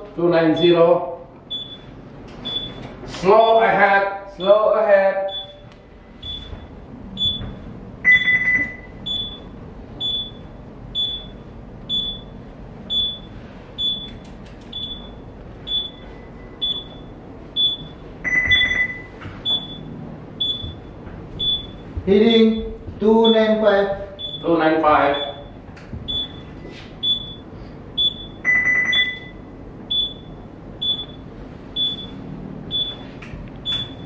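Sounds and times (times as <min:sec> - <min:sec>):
faint low hum: 0:00.0 - 0:34.0
long low alarm tone: 0:03.4 - 0:34.0
short high alarm beeps: 0:05.2 - 0:05.6, 0:07.2 - 0:23.5, 0:24.2 - 0:24.5, 0:25.1 - 0:34.0.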